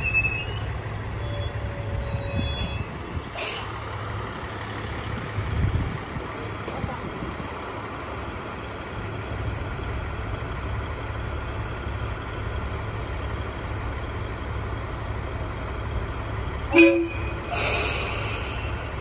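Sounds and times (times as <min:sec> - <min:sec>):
diesel railcar engine rumbling: 0:00.0 - 0:19.0
train horn toot: 0:16.7 - 0:17.5.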